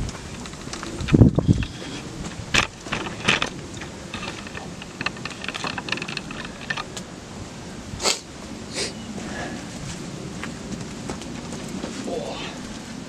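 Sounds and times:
rustling: 0:00.0 - 0:07.0
small clicks and crackles: 0:00.0 - 0:07.1.

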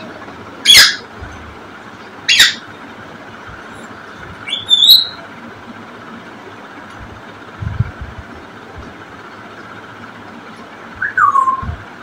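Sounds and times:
parrot screeching: 0:00.6 - 0:01.1, 0:02.3 - 0:02.6, 0:04.5 - 0:05.2
parrot whistle rising: 0:04.4 - 0:05.2, 0:11.0 - 0:11.8.

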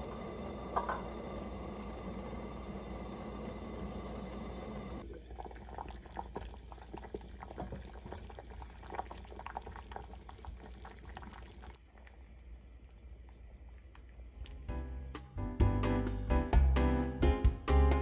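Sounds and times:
soup boiling with popping bubbles: 0:00.0 - 0:12.6.

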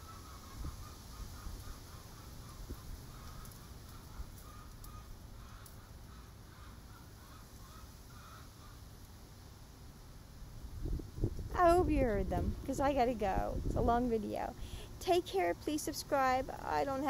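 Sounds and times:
chickens clucking: 0:00.0 - 0:08.8.

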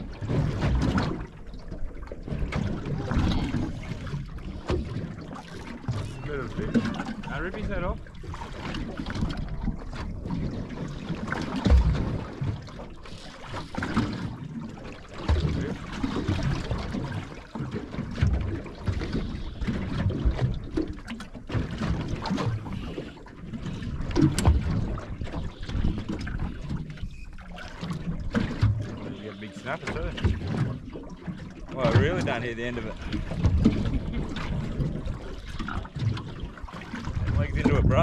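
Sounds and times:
water splashing against boat hull: 0:00.0 - 0:38.0
wind buffeting microphone: 0:31.7 - 0:38.0.

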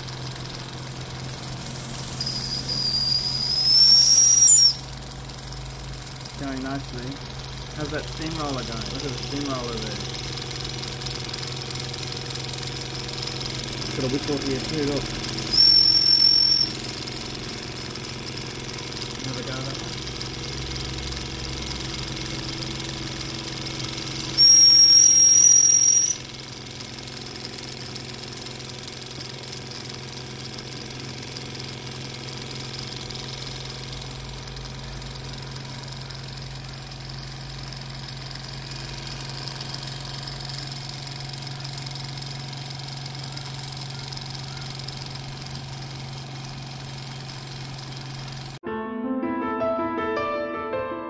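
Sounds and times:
model steam engines running: 0:00.0 - 0:48.6
shrill steam whistle: 0:01.6 - 0:05.0, 0:15.5 - 0:16.9, 0:24.2 - 0:26.3.

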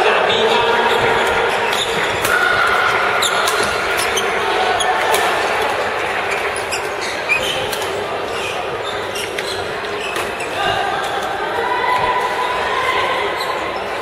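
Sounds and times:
busy hall din: 0:00.0 - 0:14.0
shoes squeaking on court floor: 0:00.5 - 0:05.2, 0:06.2 - 0:11.3
rackets striking shuttlecock: 0:01.2 - 0:04.2.

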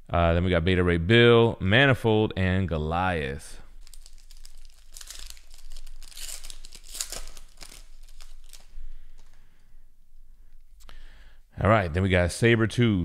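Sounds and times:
wrapper tearing and crinkling: 0:03.6 - 0:09.4
rustling of wrapper and cards: 0:03.6 - 0:09.7.

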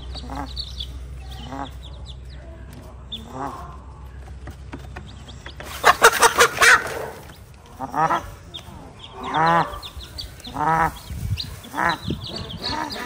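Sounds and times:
hen calling: 0:00.0 - 0:02.3, 0:05.6 - 0:13.0
chicks peeping: 0:00.0 - 0:13.0.

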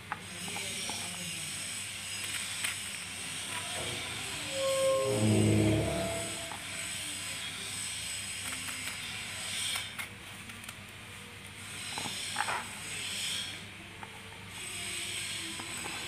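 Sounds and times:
pitched tone: 0:03.8 - 0:06.8.

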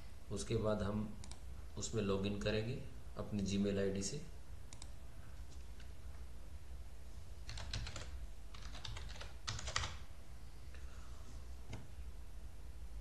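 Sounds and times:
low steady hum: 0:00.0 - 0:13.0
typing on computer keyboard: 0:07.5 - 0:10.0.

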